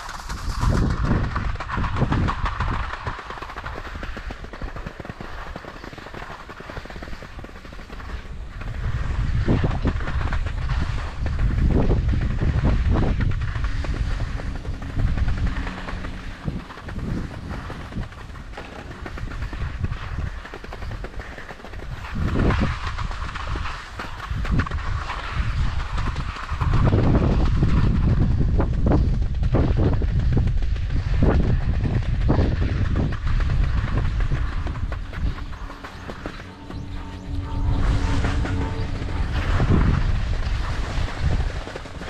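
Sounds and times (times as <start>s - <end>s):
skis scraping on snow: 0.0s - 29.8s, 30.4s - 42.0s
low lift rumble: 8.4s - 20.1s, 31.6s - 42.0s.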